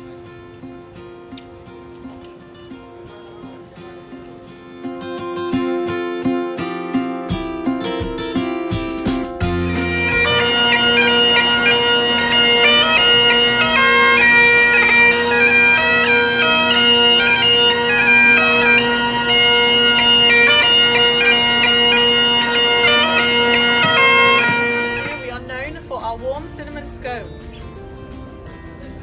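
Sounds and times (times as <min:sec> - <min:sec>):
bagpipe playing a tune: 0:09.4 - 0:26.0.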